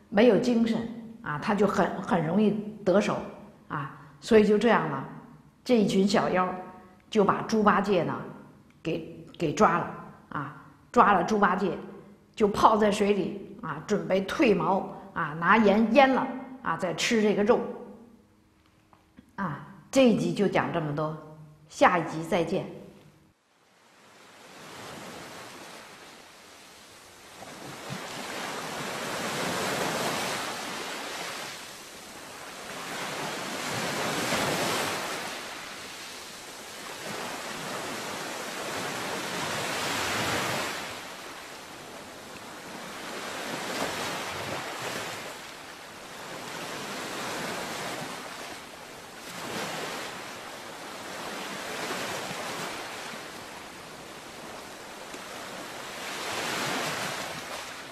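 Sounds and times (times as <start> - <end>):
ocean waves washing in: 23.5 - 57.9.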